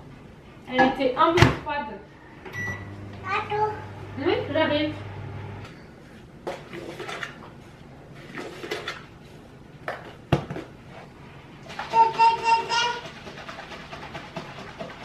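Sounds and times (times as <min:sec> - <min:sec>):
short high-pitched voice: 0:11.8 - 0:13.0.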